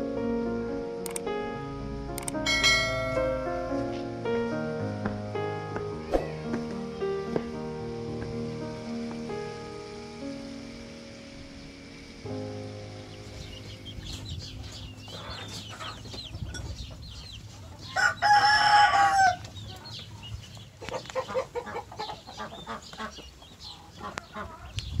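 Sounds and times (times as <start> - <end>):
chickens chirping and clucking: 13.1 - 25.0
rooster crowing: 17.8 - 19.5.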